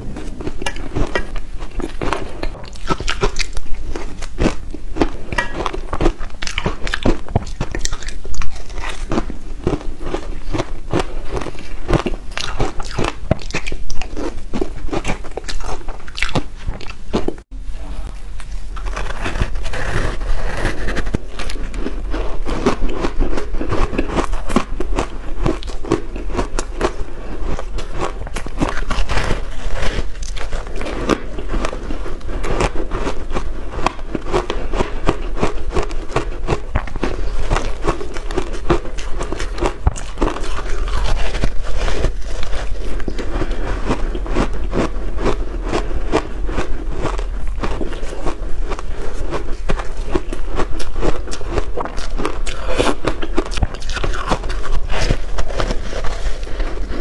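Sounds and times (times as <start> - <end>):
chewing crunchy shaved ice: 0.0 - 17.5, 18.4 - 57.0.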